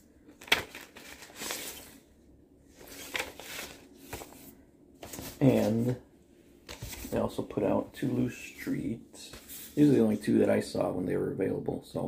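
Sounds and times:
paper sleeve rustling: 0.4 - 2.0, 2.8 - 6.0, 6.7 - 7.4, 9.3 - 10.2.

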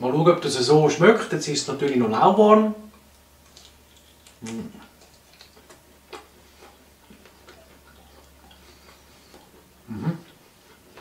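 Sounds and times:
man chewing with mouth clicks: 2.9 - 11.0
man humming: 4.4 - 4.9, 9.8 - 10.3.

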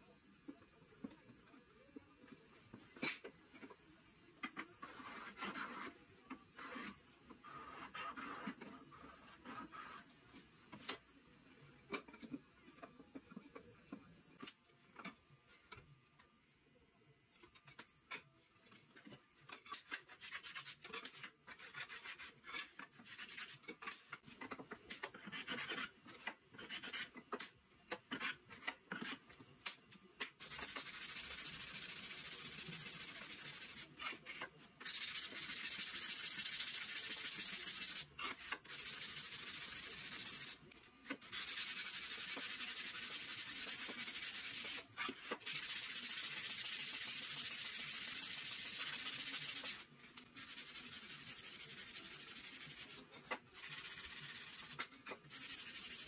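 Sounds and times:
sandpaper sanding wood: 20.1 - 23.7, 30.4 - 33.9, 34.8 - 40.6, 41.2 - 56.0.

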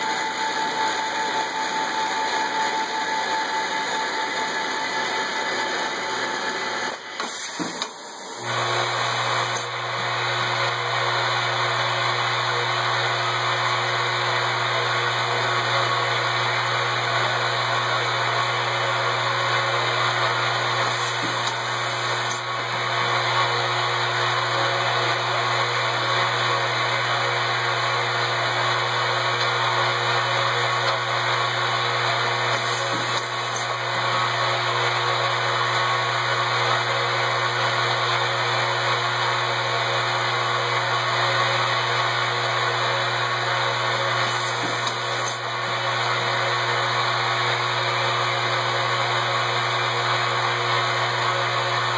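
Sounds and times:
machinery whirring: 20.8 - 22.5, 44.2 - 45.5.

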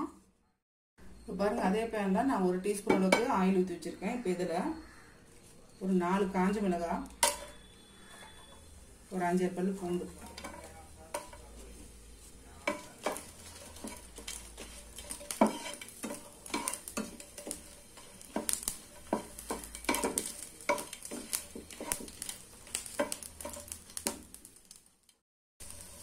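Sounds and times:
faint sizzle: 1.0 - 26.0
spatula knocking and scraping pan: 9.4 - 24.4.

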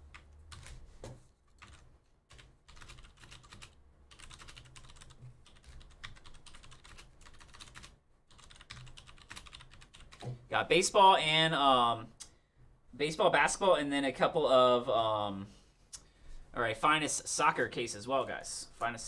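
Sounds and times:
typing on computer keyboard: 0.1 - 0.8, 1.5 - 10.3.

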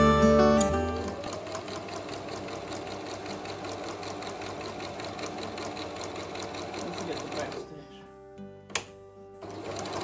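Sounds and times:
sewing machine stitching: 0.6 - 7.7, 9.4 - 10.0.

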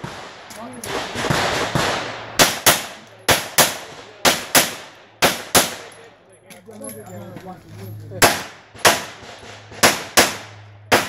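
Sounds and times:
pistol shots: 0.0 - 5.9, 8.2 - 11.0.

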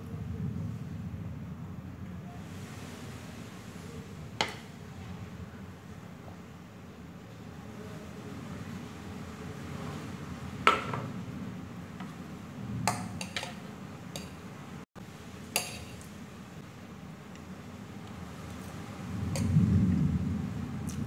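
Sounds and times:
low steady hum: 0.0 - 21.0
fork clinking against plate: 15.6 - 16.1.

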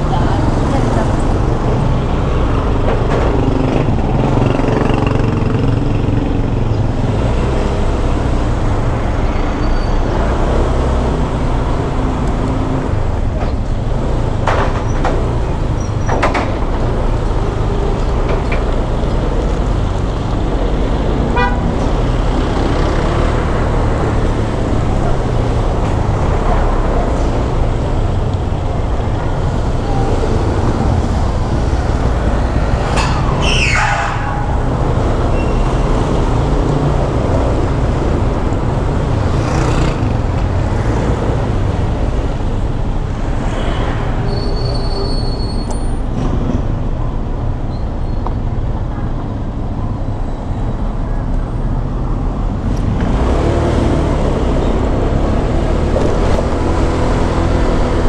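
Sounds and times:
scooter engine and road noise: 0.0 - 58.0
vehicle horn toot: 21.4 - 21.7.

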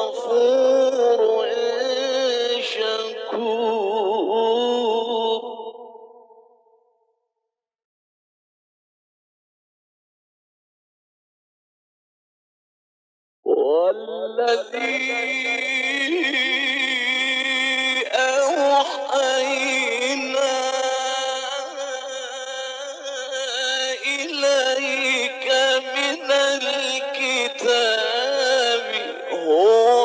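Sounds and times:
man chanting melodically: 0.0 - 6.4, 13.5 - 30.0.

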